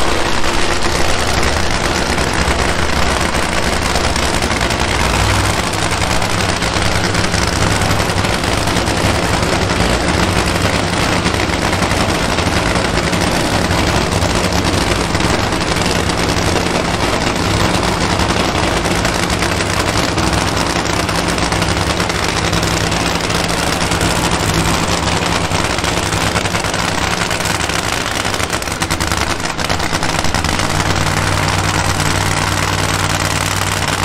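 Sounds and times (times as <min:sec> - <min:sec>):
drag racing engine idling: 0:00.0 - 0:34.0.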